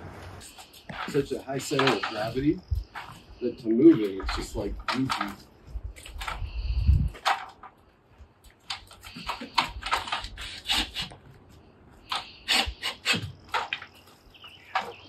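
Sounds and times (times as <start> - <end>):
metal ladder clanking: 0.9 - 2.4.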